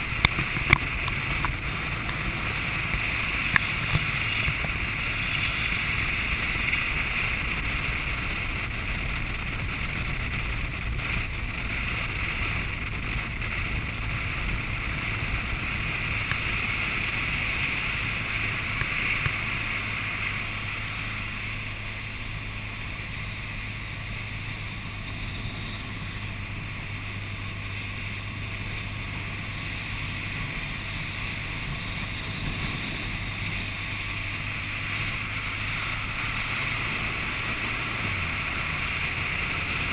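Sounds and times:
wind rush over camera: 0.0 - 21.7
motorcycle engine cruising: 0.0 - 39.9.

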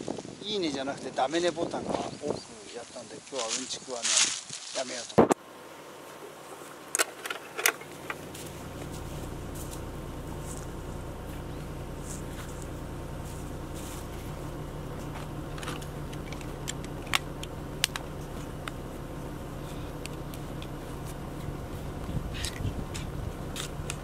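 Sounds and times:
low mechanical hum: 5.3 - 24.0
camping gear clicks and clinks: 15.1 - 18.8.

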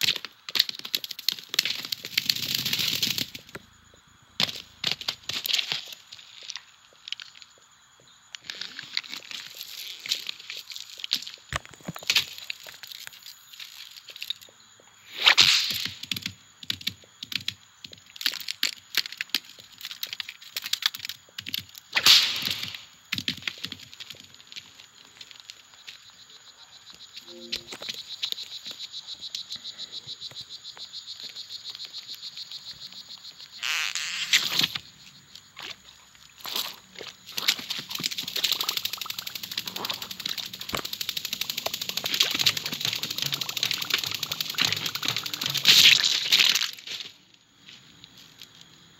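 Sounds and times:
fast run of fine clicks: 37.5 - 46.3.

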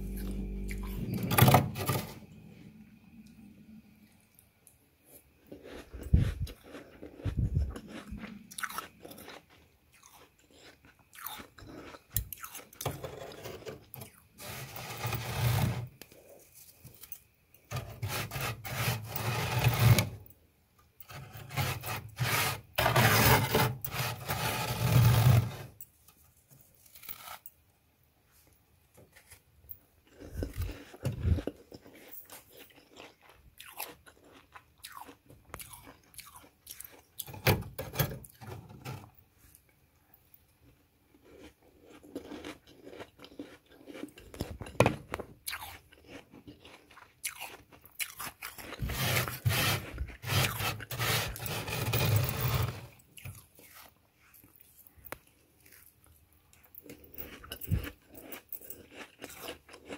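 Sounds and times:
frost crunching and squeaking: 41.2 - 54.6.

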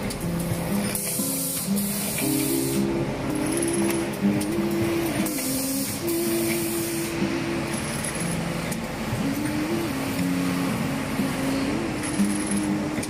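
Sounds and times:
pneumatic air hissing: 0.9 - 2.9, 5.2 - 7.2.

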